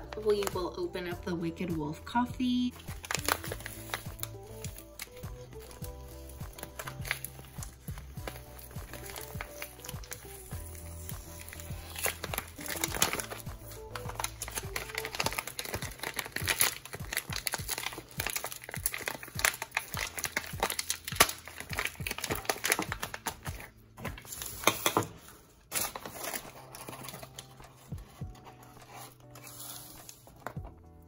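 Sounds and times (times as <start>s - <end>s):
coffee bag crinkling: 0.0s - 0.9s, 2.7s - 30.8s.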